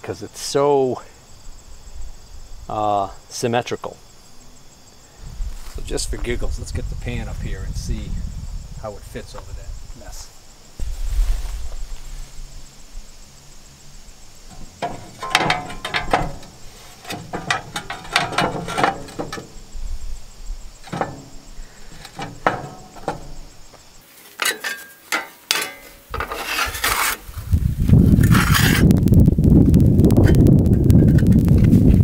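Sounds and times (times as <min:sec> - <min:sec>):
metal knocking and scraping: 0:14.4 - 0:27.3, 0:28.1 - 0:28.9, 0:30.1 - 0:31.8.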